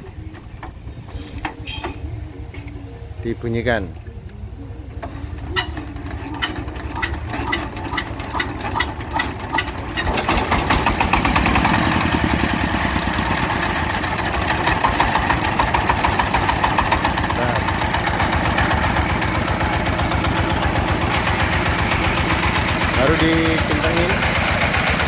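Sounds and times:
diesel engine clattering: 0.0s - 25.0s.

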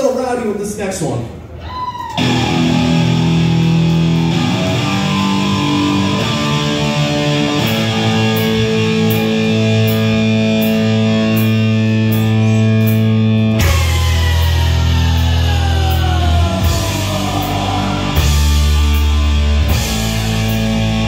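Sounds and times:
bass guitar: 2.1s - 21.0s
distorted electric guitar chords: 2.2s - 21.0s.

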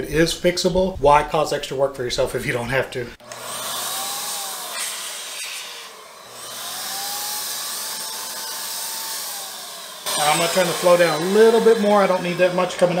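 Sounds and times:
motor whine: 3.2s - 13.0s
paint sprayer rushing air: 3.3s - 13.0s.

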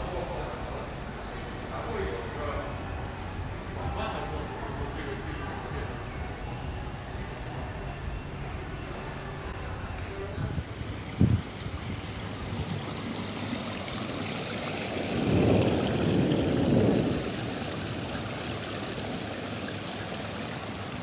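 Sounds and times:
fountain water splashing: 10.3s - 21.0s.

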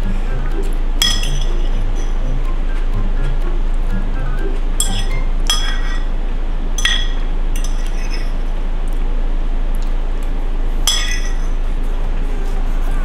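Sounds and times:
steady hiss: 0.0s - 13.0s
metal utensil clinking on dish: 1.0s - 2.2s, 4.8s - 6.1s, 6.8s - 8.3s, 10.9s - 11.6s.

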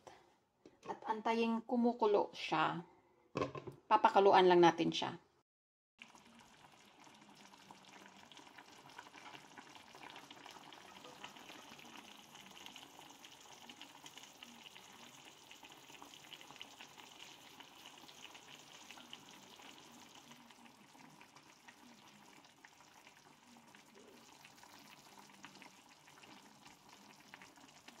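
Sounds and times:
soup bubbling and popping: 6.0s - 28.0s.

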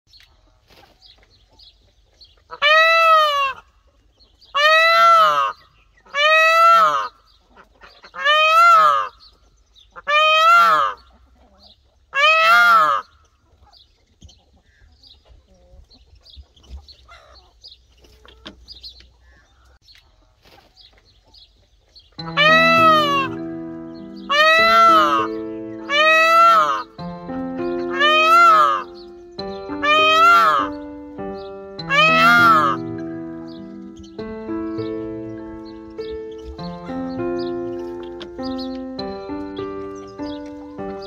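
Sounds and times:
peacock calling loudly: 2.4s - 3.7s, 4.5s - 9.2s, 9.9s - 11.2s, 12.1s - 13.1s, 22.2s - 41.0s.

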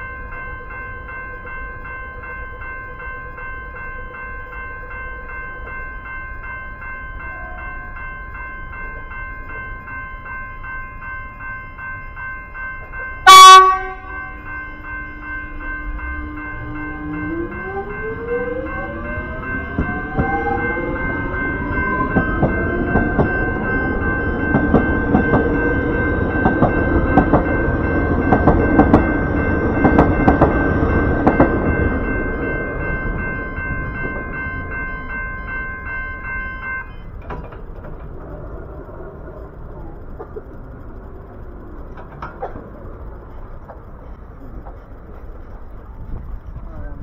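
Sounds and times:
electric train motor whine: 0.0s - 47.0s
steady high tones: 0.0s - 47.0s
wheels clicking over rail joints: 15.6s - 47.0s.

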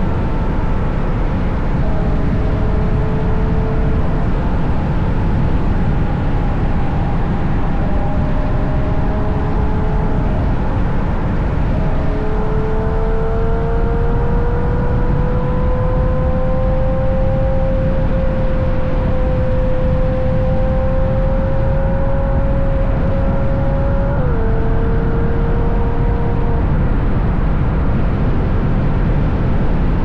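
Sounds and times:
faint car engine: 0.0s - 30.0s
wind and road rumble: 0.0s - 30.0s.

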